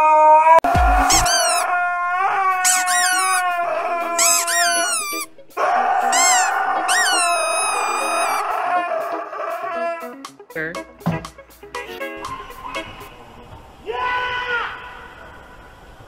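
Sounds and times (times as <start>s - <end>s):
husky howling: 1.0s - 10.1s.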